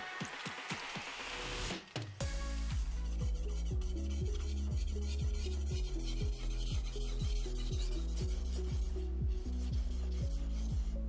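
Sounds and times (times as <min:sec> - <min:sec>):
background music with low notes: 0:00.0 - 0:11.0
knife scraping on whetstone: 0:02.9 - 0:11.0.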